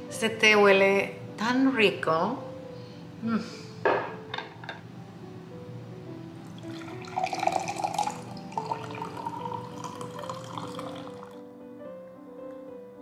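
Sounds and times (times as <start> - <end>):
tea pouring into a mug: 6.5 - 11.4.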